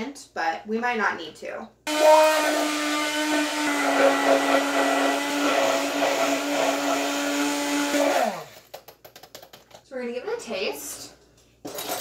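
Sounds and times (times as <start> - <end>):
immersion blender motor humming: 1.9 - 8.6.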